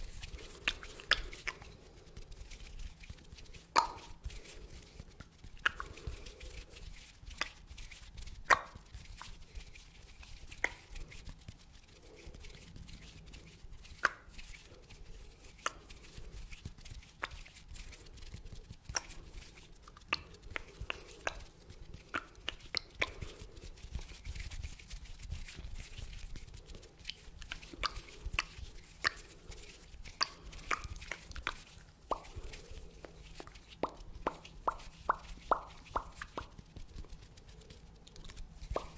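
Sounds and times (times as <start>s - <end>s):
tongue and lip clicks: 0.0s - 1.9s, 2.8s - 4.4s, 5.2s - 6.4s, 7.3s - 9.4s, 10.4s - 11.2s, 13.8s - 14.7s, 15.5s - 16.1s, 18.8s - 24.2s, 27.0s - 38.9s.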